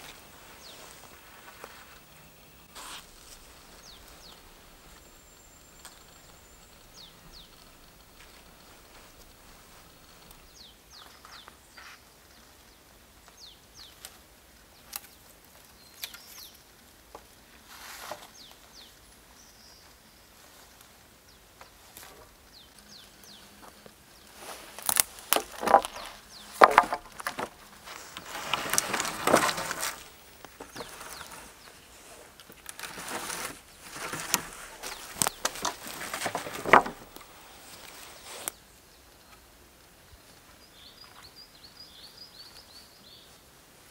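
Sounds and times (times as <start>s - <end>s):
rustling and scraping through branches: 0.0s - 12.4s, 13.3s - 38.6s
faint bird chirps: 0.0s - 14.1s, 33.7s - 43.4s
wood knocking on wood: 25.4s - 27.6s, 34.0s - 37.2s.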